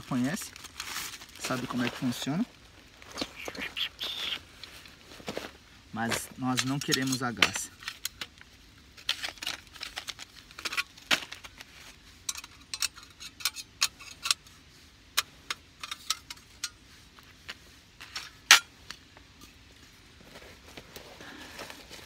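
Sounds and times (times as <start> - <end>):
metal camp gear clinking: 6.0 - 8.3, 8.9 - 14.6, 15.2 - 16.9.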